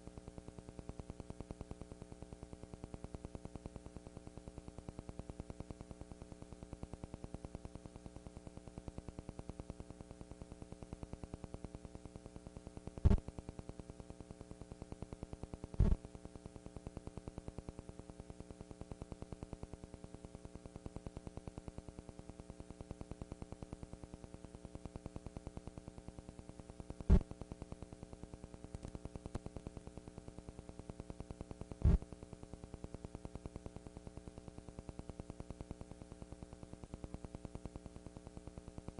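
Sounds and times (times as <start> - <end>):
electrical hum and buzz: 0.0 - 38.9.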